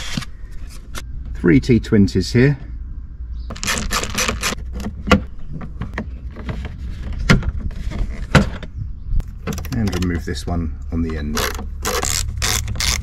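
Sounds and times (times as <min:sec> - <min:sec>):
sharp plastic clicks and knocks: 0:08.3 - 0:10.3.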